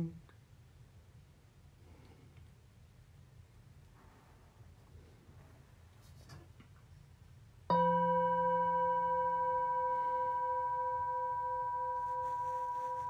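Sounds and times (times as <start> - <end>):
singing bowl ringing: 7.7 - 13.0.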